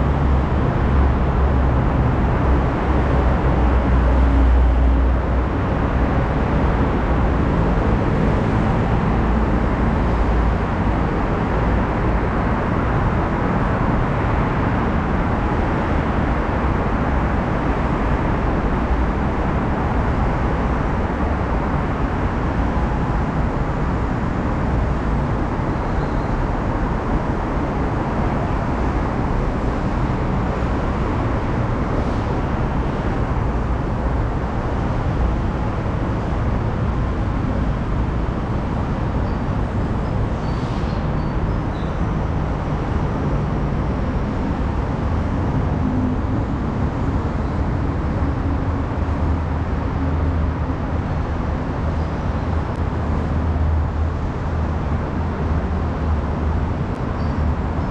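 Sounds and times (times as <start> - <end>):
city traffic rumble: 0.0 - 57.9
deep engine hum: 0.0 - 57.9.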